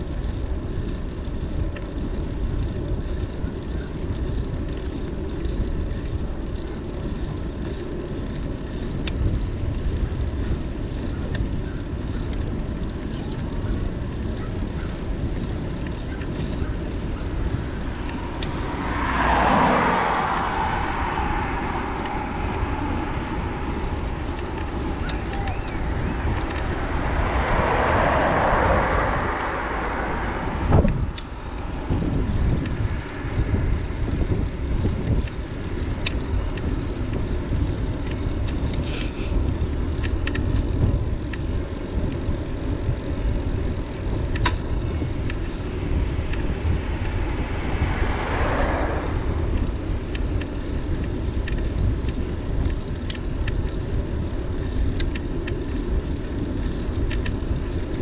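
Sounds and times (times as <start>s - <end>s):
wind rumbling on microphone: 0.0s - 58.0s
rushing noise: 17.7s - 33.9s, 45.5s - 50.2s.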